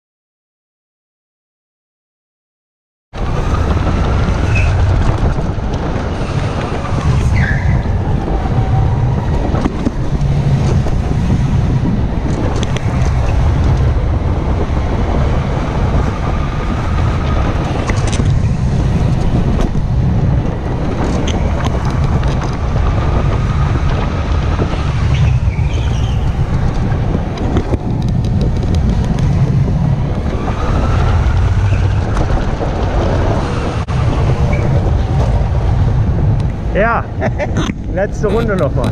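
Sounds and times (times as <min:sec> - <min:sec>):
go-kart engine rumble: 0:03.2 - 0:38.9
rushing air: 0:03.2 - 0:38.9.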